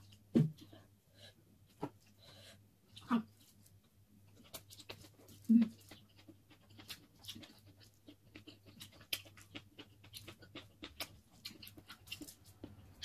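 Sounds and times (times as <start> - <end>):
chewing and lip-smacking: 4.3 - 13.0.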